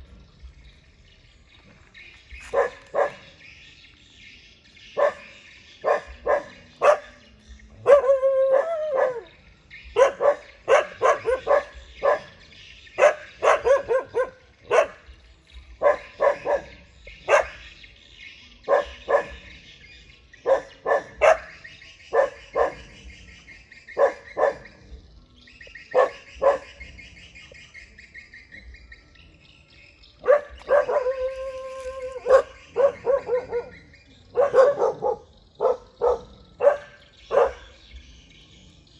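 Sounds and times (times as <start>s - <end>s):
dogs barking: 2.3s - 3.4s, 4.9s - 17.8s, 18.6s - 19.6s, 20.2s - 25.1s, 25.7s - 27.1s, 30.2s - 38.0s
dog drawn-out call: 30.2s - 37.7s.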